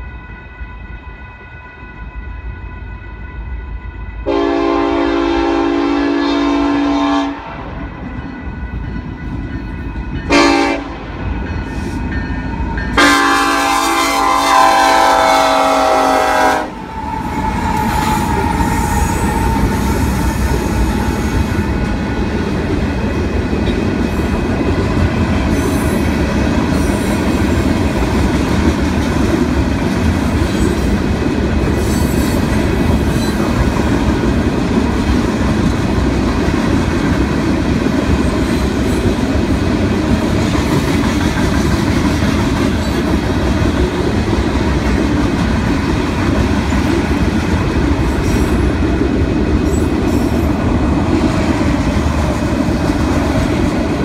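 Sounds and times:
train air horn blasts: 0:03.7 - 0:07.8, 0:10.2 - 0:11.1, 0:13.0 - 0:21.7
locomotive engines rumbling: 0:04.2 - 0:54.0
train wheels clattering on rails: 0:16.7 - 0:54.0.

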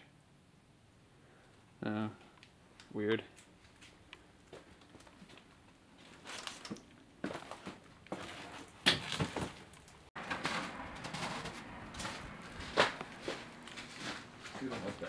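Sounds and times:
footsteps on debris and snow: 0:03.6 - 0:15.0.

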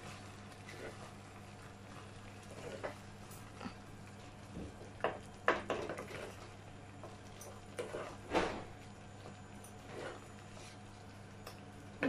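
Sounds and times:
spatula scraping a pot: 0:00.6 - 0:01.2, 0:01.9 - 0:03.0, 0:07.8 - 0:08.2, 0:09.8 - 0:10.7.

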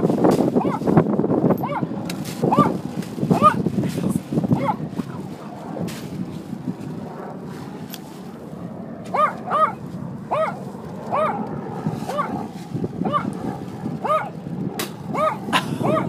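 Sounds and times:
small dog yapping: 0:00.6 - 0:00.9, 0:01.6 - 0:03.6, 0:04.5 - 0:05.2, 0:09.1 - 0:13.4, 0:14.0 - 0:14.4, 0:15.1 - 0:16.0.

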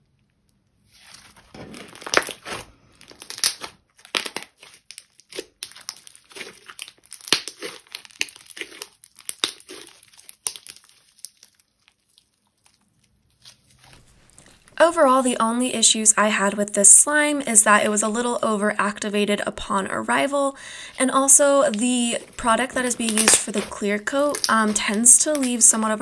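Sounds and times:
hands squishing slime: 0:00.9 - 0:14.7, 0:20.5 - 0:26.0
crackly clicks and pops of slime: 0:03.1 - 0:13.6, 0:23.0 - 0:23.7, 0:24.3 - 0:25.5.

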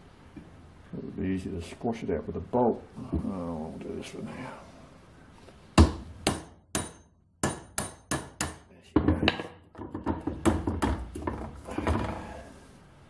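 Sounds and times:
hammer striking metal punch: 0:05.8 - 0:11.1.

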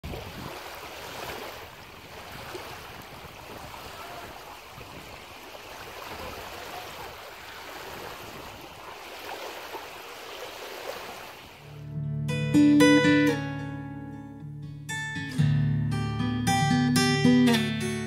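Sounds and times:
small waves lapping on stones: 0:00.0 - 0:11.7.

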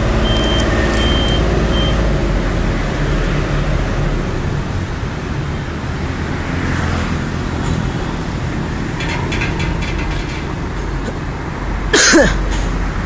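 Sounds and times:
motorbikes and cars passing: 0:00.0 - 0:13.0
sharp clicks: 0:00.4 - 0:01.4.

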